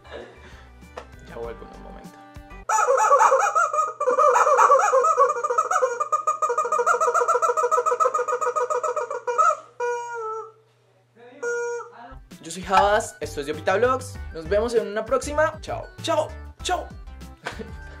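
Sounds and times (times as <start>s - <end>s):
rubber chicken toy squawking: 2.7s - 10.6s, 11.4s - 12.0s.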